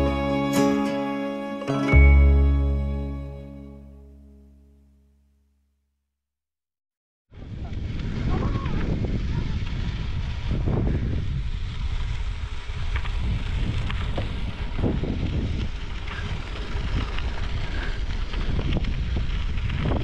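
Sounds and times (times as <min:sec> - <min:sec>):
wind buffeting microphone: 0:07.3 - 0:20.0.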